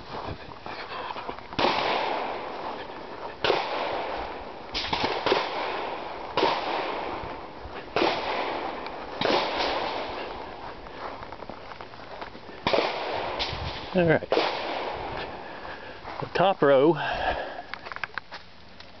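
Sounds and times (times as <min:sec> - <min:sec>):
steady background hiss: 0:00.0 - 0:19.0
gunshots with echo: 0:01.6 - 0:10.6, 0:12.6 - 0:15.2.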